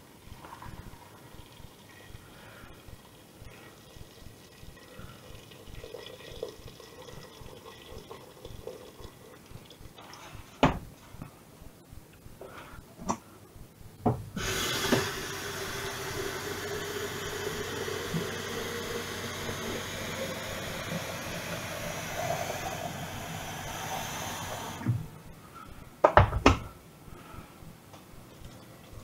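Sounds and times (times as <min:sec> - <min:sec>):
water running into kettle: 0:00.7 - 0:10.3, 0:14.4 - 0:24.9
kettle clicks and knocks: 0:14.8 - 0:15.2.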